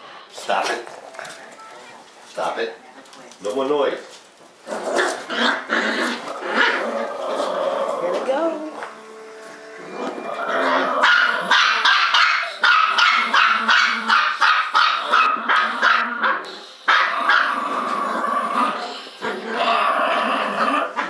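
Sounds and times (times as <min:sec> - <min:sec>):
small dogs barking: 0:10.6 - 0:17.8.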